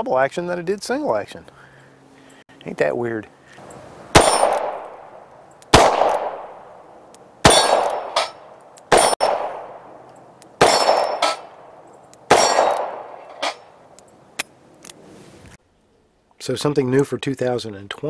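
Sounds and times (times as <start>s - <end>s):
revolver shots with echo: 4.2s - 6.6s, 7.5s - 9.9s.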